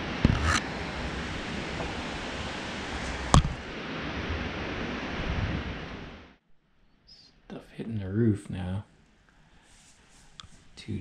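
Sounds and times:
storm wind gusting: 0.0s - 6.4s.

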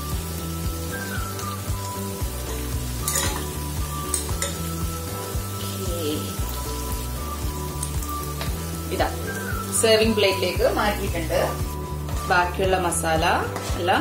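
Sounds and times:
food sizzling in a pan: 0.0s - 14.0s
metal spatula scraping a pan: 3.0s - 4.7s, 13.5s - 14.0s.

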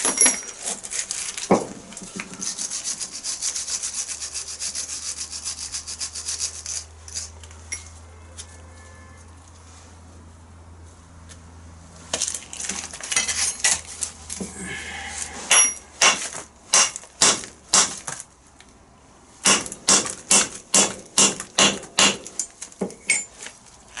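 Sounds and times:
hammer striking metal drift: 15.5s - 17.9s.

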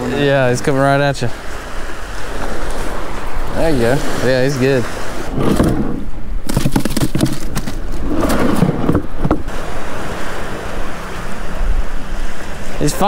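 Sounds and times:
surf: 0.0s - 13.0s
wind on microphone: 1.4s - 13.0s
plastic cooler lid clattering: 6.5s - 9.4s.

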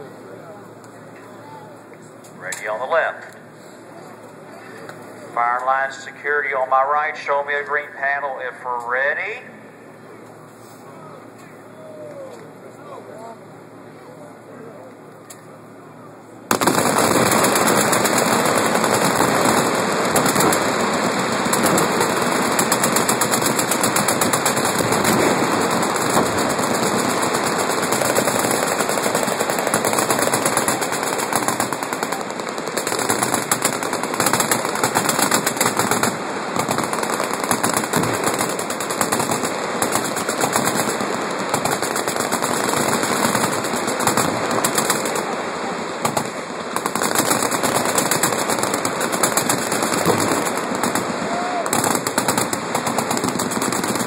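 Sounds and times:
machine guns firing: 16.5s - 54.0s.

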